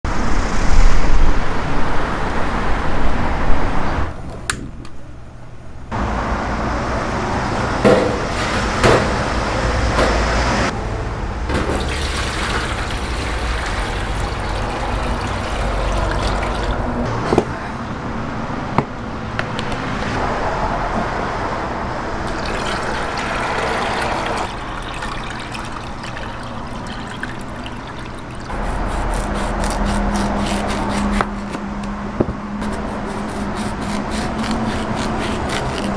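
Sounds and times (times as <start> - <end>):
street noise: 0.1 - 35.9
water pouring into a metal pan: 11.6 - 16.9, 22.3 - 28.5
broth streaming into a pan: 11.8 - 16.8, 22.3 - 28.5.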